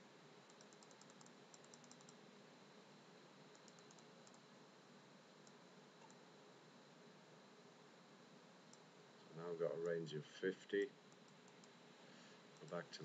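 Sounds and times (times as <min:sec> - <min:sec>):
low steady hiss: 0:00.0 - 0:13.0
computer mouse clicking: 0:00.5 - 0:02.2, 0:03.5 - 0:04.4, 0:05.4 - 0:06.2, 0:11.1 - 0:11.8, 0:12.6 - 0:12.8.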